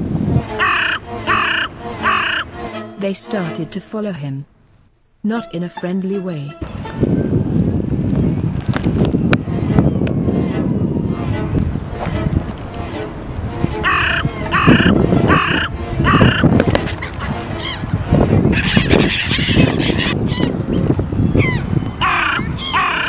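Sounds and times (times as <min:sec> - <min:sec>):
geese honking: 0:00.5 - 0:03.8, 0:12.2 - 0:20.2, 0:22.0 - 0:23.0.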